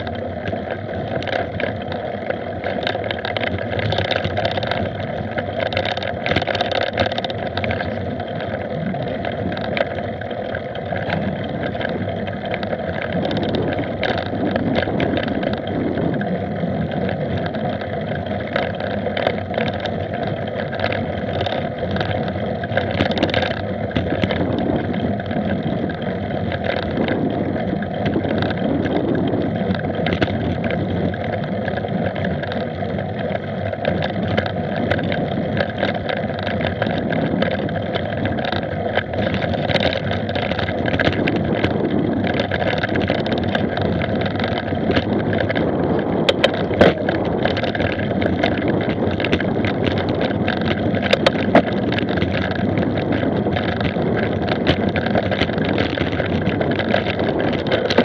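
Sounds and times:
bike clicks and rattles: 0.0 - 58.0
wind and tyre noise: 0.0 - 58.0.

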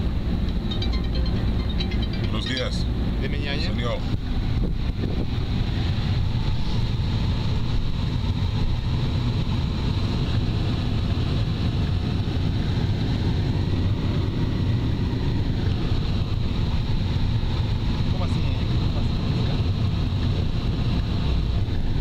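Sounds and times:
faint high whine: 0.0 - 4.2
vehicle engine rumble: 0.0 - 22.0.

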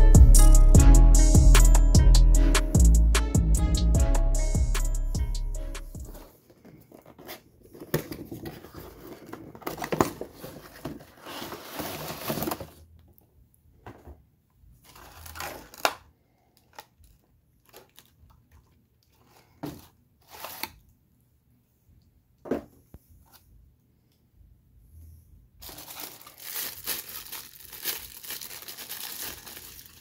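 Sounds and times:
cardboard scraping and rustling: 6.6 - 12.8
tissue paper rustling: 7.8 - 12.7, 25.6 - 30.0.

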